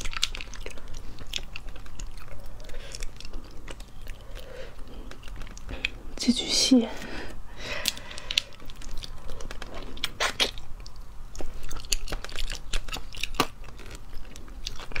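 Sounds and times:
wet chewing: 0:00.0 - 0:06.2, 0:07.6 - 0:15.0.

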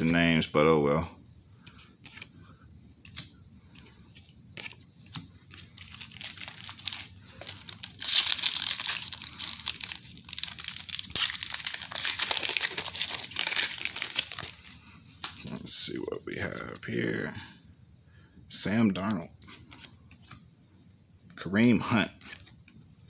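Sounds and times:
foil wrapper crinkling: 0:05.4 - 0:15.6.

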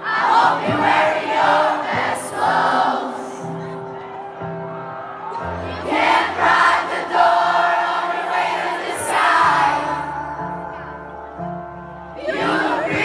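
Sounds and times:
crowd singing along: 0:00.0 - 0:04.0, 0:05.4 - 0:13.0
person singing live: 0:11.9 - 0:13.0.

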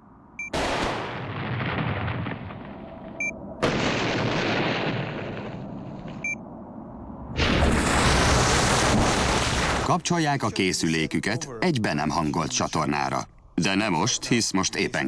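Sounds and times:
explosion booms: 0:00.6 - 0:06.2, 0:07.3 - 0:09.9.

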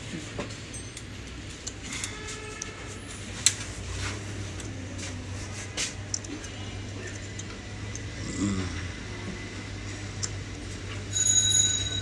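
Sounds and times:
steady low hum: 0:03.4 - 0:11.1.

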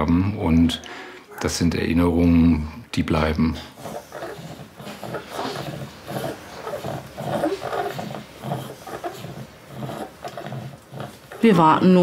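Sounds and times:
toddler breathing noisily: 0:03.7 - 0:10.9.

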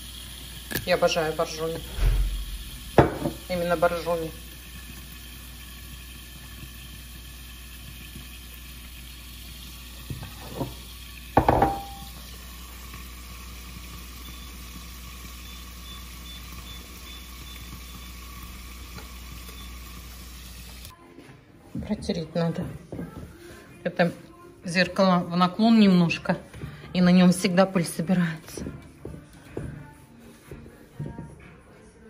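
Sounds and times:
fish sizzling in a frying pan: 0:00.0 - 0:20.9.

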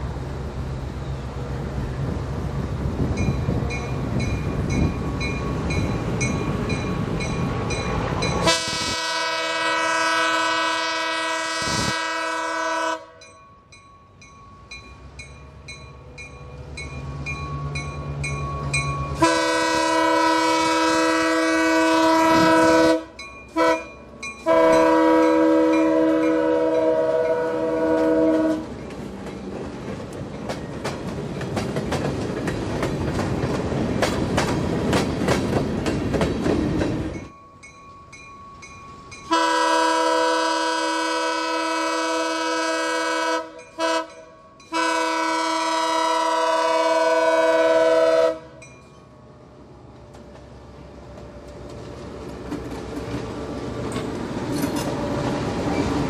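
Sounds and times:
locomotive air horn blasts: 0:08.4 - 0:13.2, 0:19.2 - 0:28.7, 0:39.3 - 0:48.6
wheels clicking over rail joints: 0:27.8 - 0:39.3, 0:49.9 - 0:56.0.

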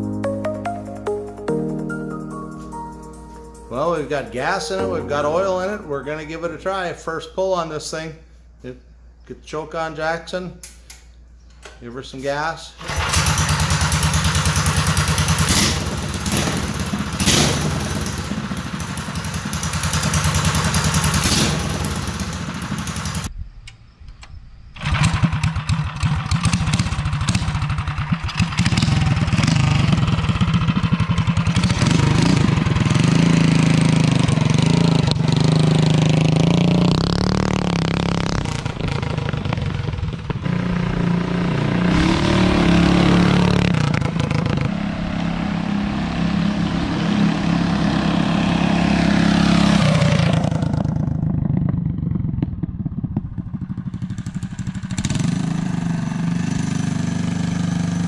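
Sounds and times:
small engine revving: 0:12.8 - 0:23.3, 0:24.8 - 0:52.5, 0:53.6 - 0:58.0.

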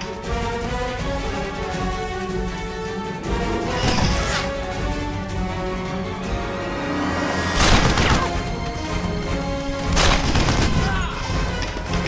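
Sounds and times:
action film music: 0:00.0 - 0:12.0
loud downward sweeping crash: 0:06.5 - 0:08.3.

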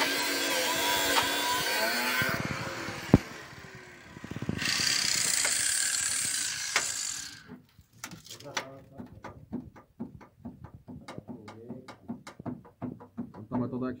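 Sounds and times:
angle grinder cutting metal: 0:00.0 - 0:07.6.

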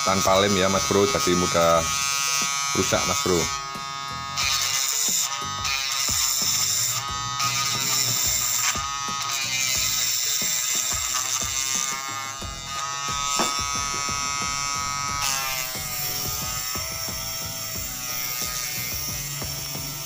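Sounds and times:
small motor whining: 0:00.0 - 0:20.0
blade scraping and sanding: 0:06.0 - 0:20.0.

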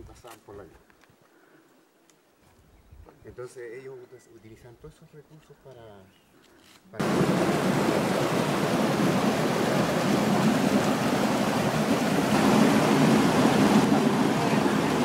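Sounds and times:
stream rushing over boulders: 0:07.0 - 0:15.0.

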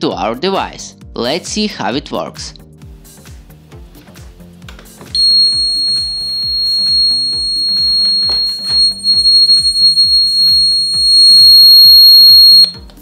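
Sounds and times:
high-pitched alarm buzzer: 0:05.2 - 0:12.7.

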